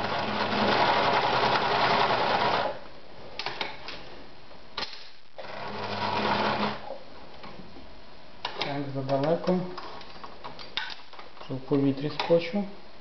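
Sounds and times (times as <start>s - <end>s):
sewing machine stitching: 0.0s - 2.8s, 5.4s - 6.9s.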